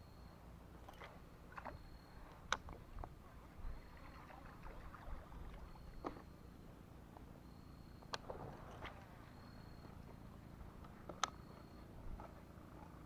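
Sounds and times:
faint water noise: 0.0 - 13.0.

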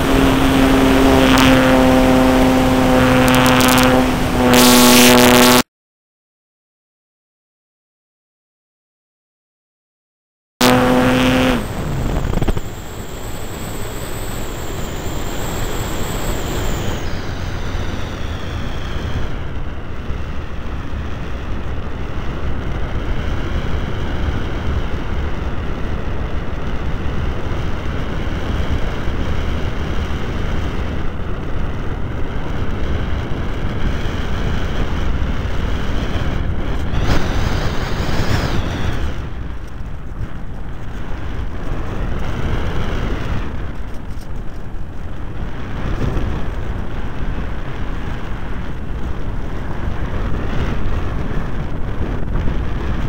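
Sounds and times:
model airplane motor whine: 0.0 - 5.6, 10.6 - 51.5
wind rush on microphone: 0.0 - 5.6, 10.6 - 53.0.

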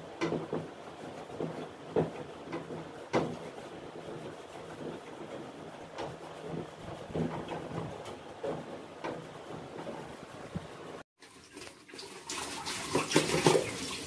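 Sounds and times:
cloth scrubbing plastic panel: 0.0 - 11.0
plastic knocks and clatters: 0.0 - 11.0.

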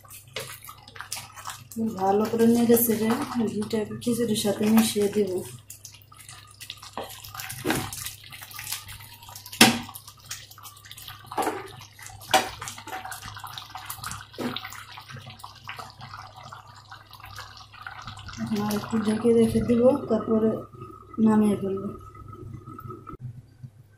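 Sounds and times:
wet sloshing and squelching: 0.0 - 19.2.

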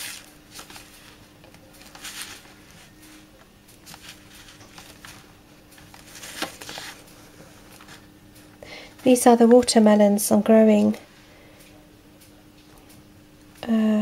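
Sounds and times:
paper seed packets rustling: 0.0 - 8.0.

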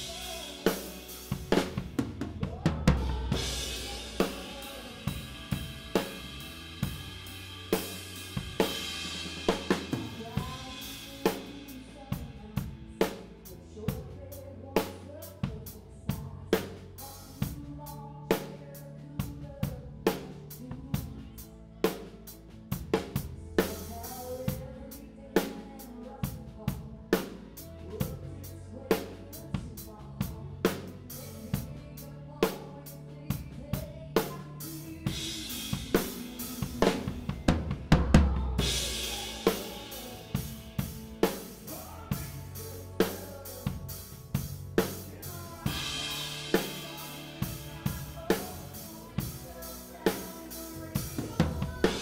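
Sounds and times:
band playing: 0.0 - 13.4, 34.2 - 52.0
drum kit ballad groove: 0.0 - 52.0.

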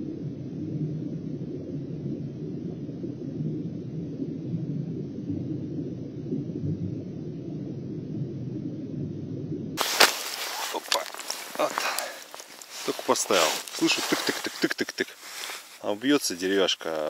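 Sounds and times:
low underwater rumble: 0.0 - 9.8.

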